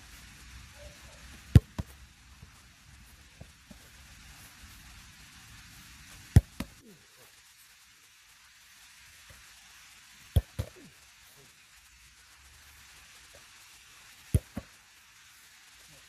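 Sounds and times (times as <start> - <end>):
football struck and caught: 1.5 - 2.0, 6.3 - 6.8, 10.4 - 10.8.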